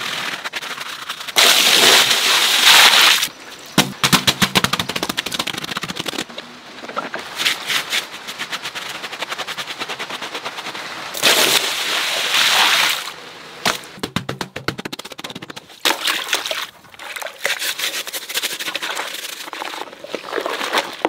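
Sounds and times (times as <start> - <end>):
brush scrubbing wet plush toy: 7.6 - 10.9, 17.0 - 21.0.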